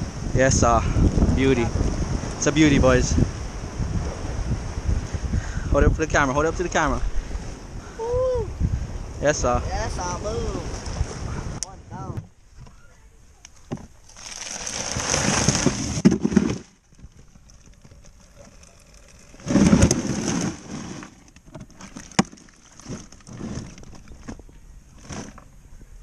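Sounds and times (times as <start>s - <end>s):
knocks and rustles in cooler: 13.7s - 25.5s
plastic bag of ice crinkling: 14.1s - 21.1s.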